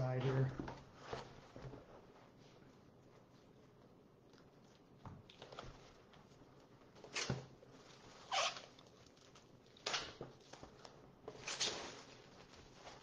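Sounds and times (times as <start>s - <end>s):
cardboard and plastic rustling: 5.2s - 13.0s.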